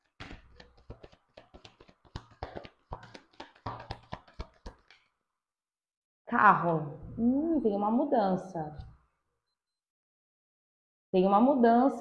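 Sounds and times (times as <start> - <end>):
cards being shuffled: 0.0 - 5.1.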